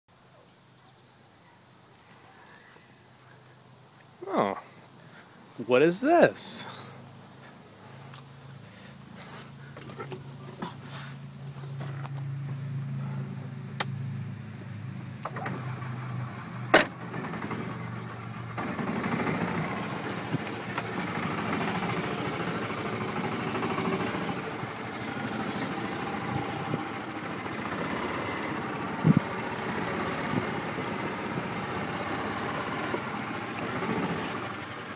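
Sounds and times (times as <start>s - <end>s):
small engine idling: 2.0s - 34.9s
engine knocks: 15.2s - 34.9s.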